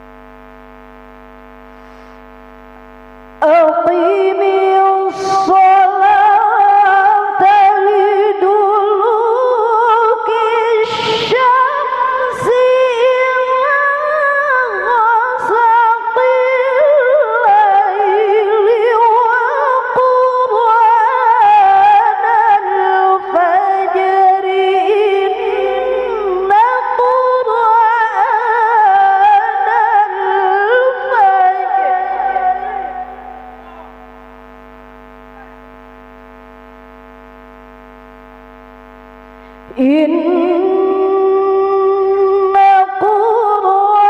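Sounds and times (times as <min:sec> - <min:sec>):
woman chanting melodically into microphone: 0:03.4 - 0:34.2, 0:39.7 - 0:44.0.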